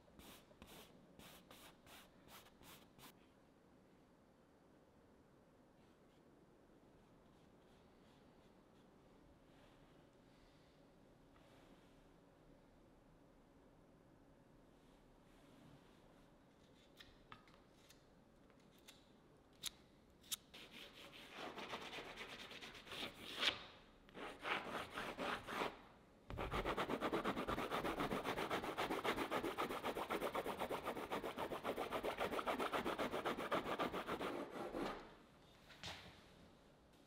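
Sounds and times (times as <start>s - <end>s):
rapid scribbling on canvas: 26.3s - 34.9s.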